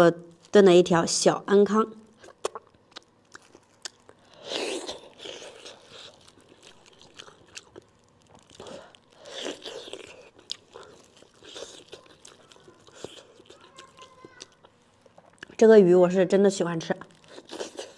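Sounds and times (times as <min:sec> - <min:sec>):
chewing and biting: 0:02.2 - 0:15.6, 0:16.9 - 0:17.9.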